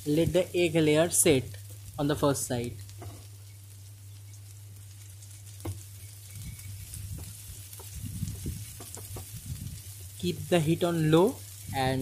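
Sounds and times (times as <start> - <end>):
food sizzling in oil: 0.0 - 12.0
spatula knocking on pan: 8.8 - 9.3.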